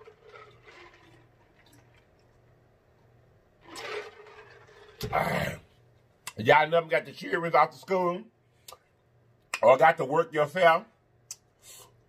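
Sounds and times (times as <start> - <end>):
loud slurp: 0.0 - 1.9, 3.6 - 5.6.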